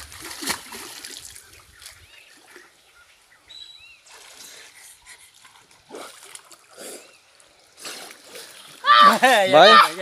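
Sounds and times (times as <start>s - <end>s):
river water lapping: 0.0s - 10.0s
bird chirps: 1.8s - 4.1s.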